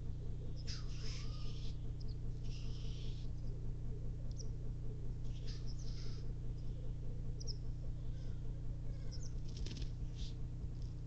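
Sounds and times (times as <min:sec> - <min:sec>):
low bubbling bird chorus: 0:00.0 - 0:09.4
short hissing bird calls: 0:00.7 - 0:01.8, 0:02.4 - 0:03.3, 0:05.4 - 0:06.2.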